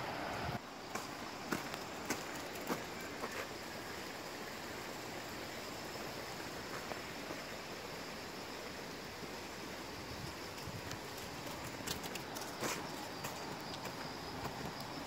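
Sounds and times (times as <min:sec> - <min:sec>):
stream water rushing: 0:00.0 - 0:15.0
footsteps on wet gravel: 0:00.9 - 0:03.5, 0:10.9 - 0:14.8.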